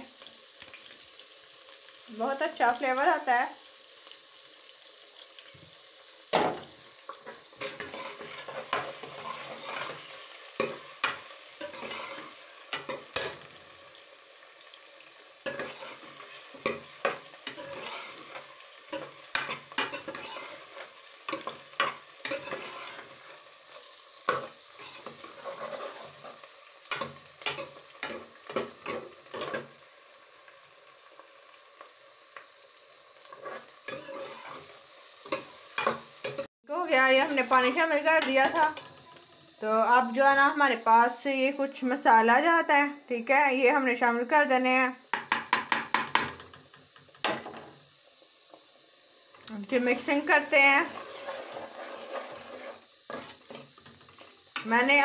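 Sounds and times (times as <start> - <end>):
vegetables sizzling in hot oil: 0.0 - 55.0
ladle scraping and knocking a pot: 50.9 - 54.0.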